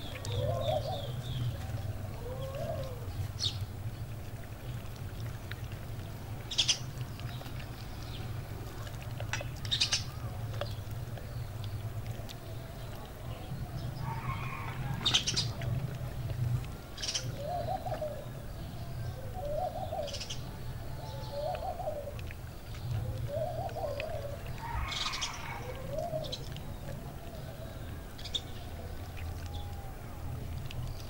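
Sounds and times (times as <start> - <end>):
dove cooing: 0.0 - 3.5, 12.4 - 30.2
low steady hum: 0.0 - 31.0
wet crackly handling of chicken: 0.0 - 31.0.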